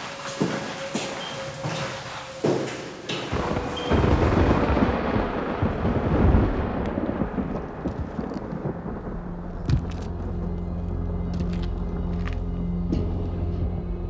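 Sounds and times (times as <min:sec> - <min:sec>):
low music drone: 0:00.0 - 0:14.0
explosion boom rumbling: 0:03.3 - 0:11.2.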